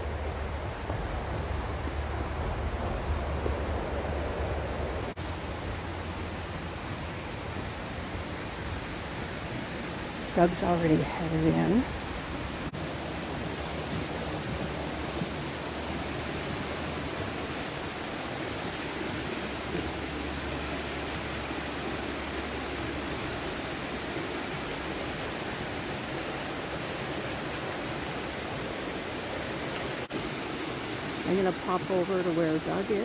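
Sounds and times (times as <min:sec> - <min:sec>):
creek and waterfall rushing: 0:00.0 - 0:33.0.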